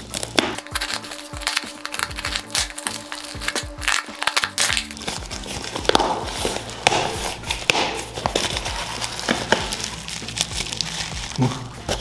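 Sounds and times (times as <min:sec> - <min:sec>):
plastic wrapping crinkling: 0:00.0 - 0:12.0.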